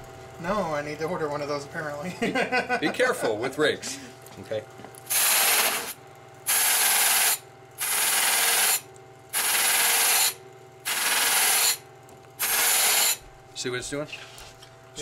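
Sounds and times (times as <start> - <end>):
buffer motor humming: 0.0 - 15.0.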